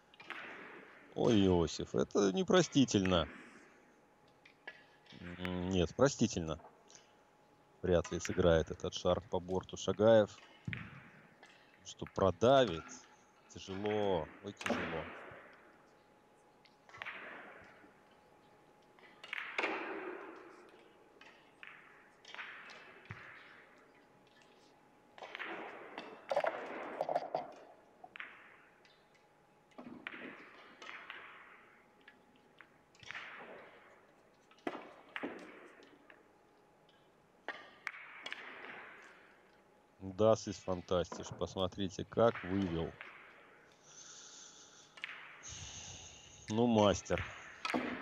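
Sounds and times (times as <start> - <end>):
billiard balls clicking: 26.1 - 33.1
billiard balls knocking: 26.2 - 28.4.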